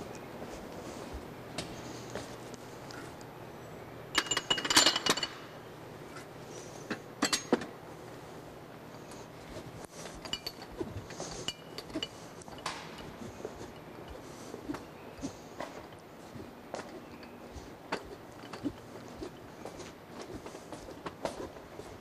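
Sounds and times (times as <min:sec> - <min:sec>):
glasses clinking on metal tray: 0:04.1 - 0:05.5, 0:07.2 - 0:07.6, 0:10.1 - 0:14.2.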